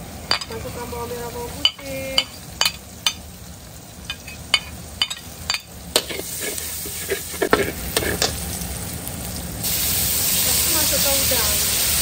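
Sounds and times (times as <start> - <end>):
oil sizzling: 0.0 - 12.0
metal spatula scraping wok: 6.0 - 8.4.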